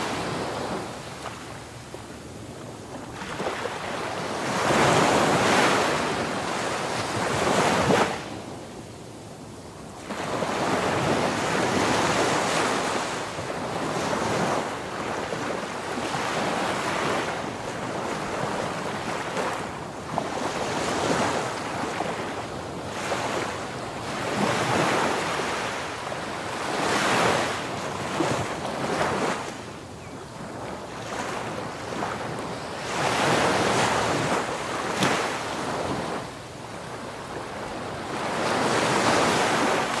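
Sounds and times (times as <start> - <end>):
surf washing in: 30.5 - 40.0.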